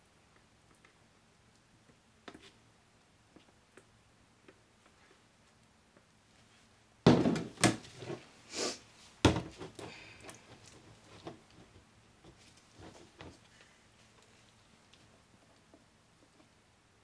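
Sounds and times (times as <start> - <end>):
plastic bucket thunk on table: 7.1 - 7.8, 9.2 - 9.5
plastic jug and spatula clatter: 7.1 - 8.2.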